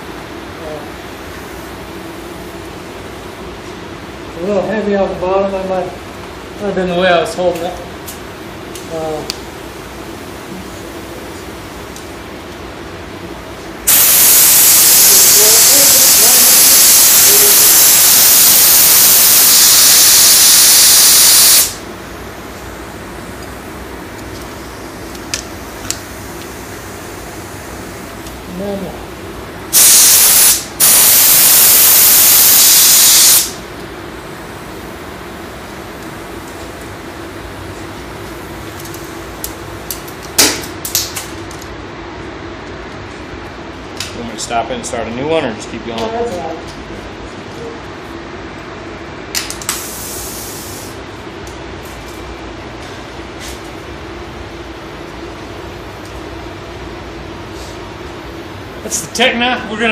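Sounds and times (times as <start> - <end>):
steady background hum: 0.0 - 59.9
paint spray gun hissing: 13.9 - 21.8, 29.7 - 33.6, 49.8 - 50.9.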